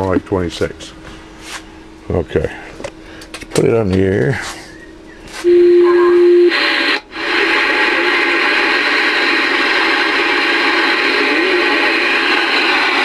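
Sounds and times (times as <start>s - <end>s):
radio receiver static: 5.4s - 13.0s
steady radio tone: 5.4s - 13.0s.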